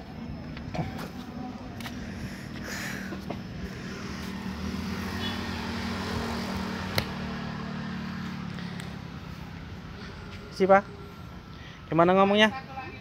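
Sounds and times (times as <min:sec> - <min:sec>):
vehicle engine humming: 0:00.0 - 0:13.0
sharp tap: 0:06.9 - 0:07.2.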